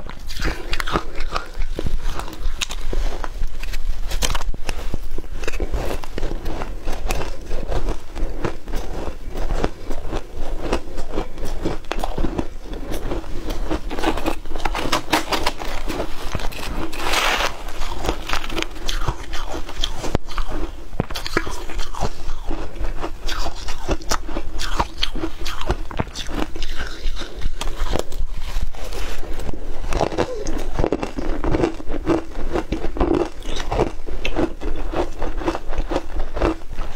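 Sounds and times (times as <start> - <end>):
crunching and chewing ice: 0.0 - 36.9
metal spoon scraping ice: 12.9 - 20.5.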